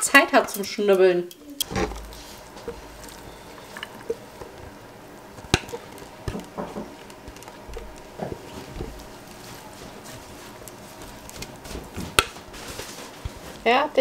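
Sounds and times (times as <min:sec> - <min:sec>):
soft wet squishes: 0:02.0 - 0:12.7.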